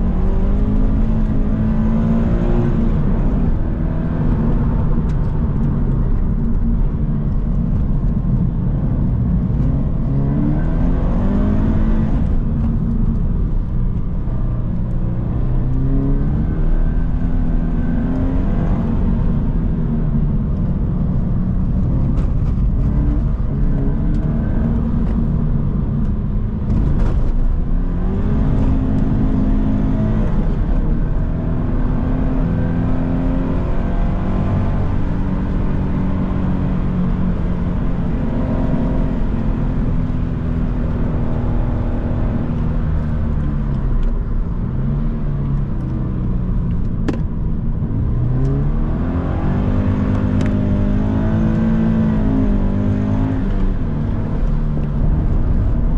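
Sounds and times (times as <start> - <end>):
car engine accelerating: 0.0 - 55.9
tyre and road noise: 0.0 - 55.9.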